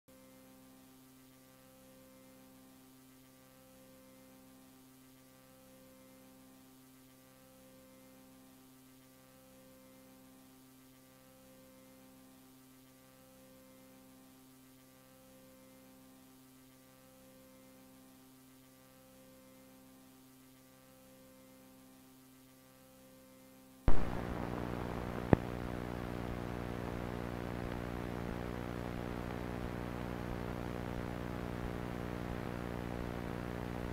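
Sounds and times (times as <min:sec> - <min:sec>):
sharp click: 0:23.9 - 0:24.2
loud buzzing hum: 0:23.9 - 0:33.9
low electrical hum: 0:23.9 - 0:33.9.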